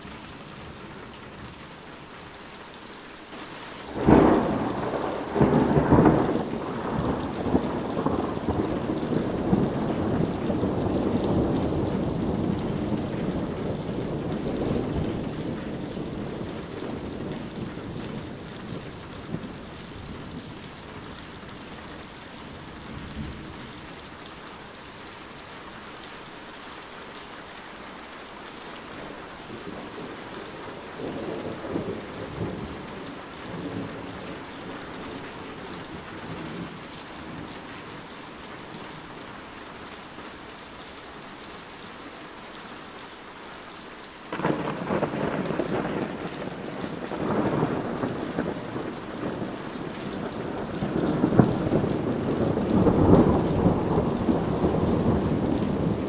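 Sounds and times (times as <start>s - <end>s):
heavy rain: 0.0s - 56.0s
thunder rumbling: 3.8s - 20.6s, 44.3s - 56.0s.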